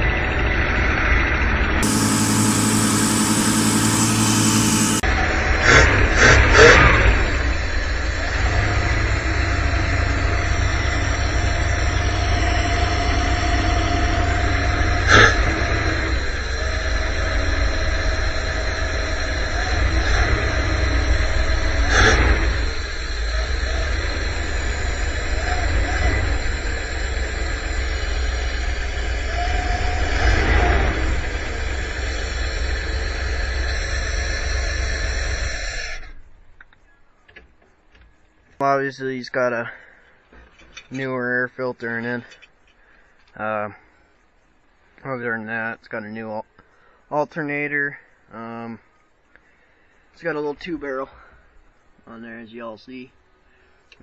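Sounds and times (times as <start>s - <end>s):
van engine idling: 0.0s - 36.0s
short loud noise: 1.8s - 7.8s.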